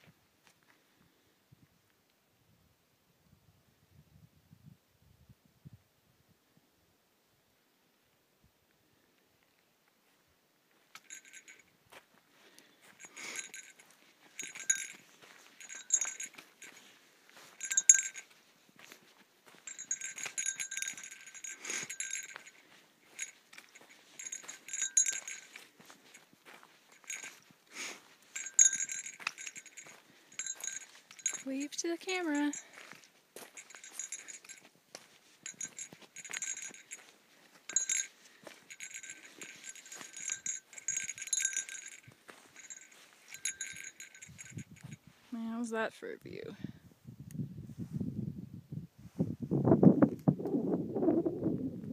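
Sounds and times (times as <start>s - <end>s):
small metal bell jingling: 10.9s - 11.8s, 12.5s - 45.6s.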